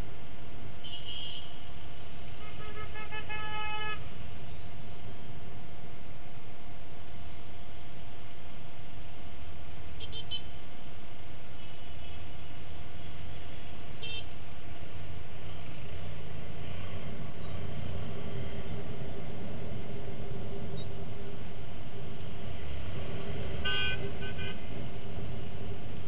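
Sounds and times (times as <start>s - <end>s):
traffic engine and road rumble: 0.0s - 26.0s.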